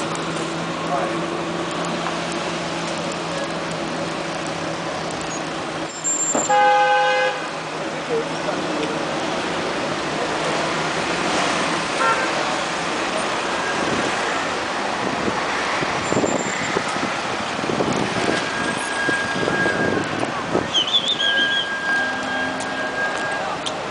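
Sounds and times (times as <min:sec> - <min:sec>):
road traffic hum: 0:00.0 - 0:23.9
high beep: 0:20.9 - 0:23.6.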